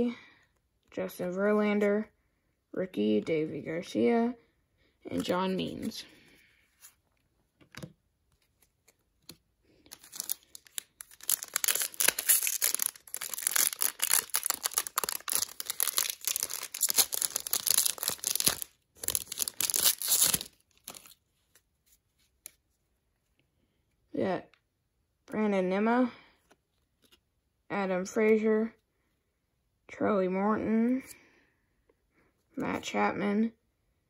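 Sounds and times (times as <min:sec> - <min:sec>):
wrapper crinkling: 0:09.7 - 0:21.2.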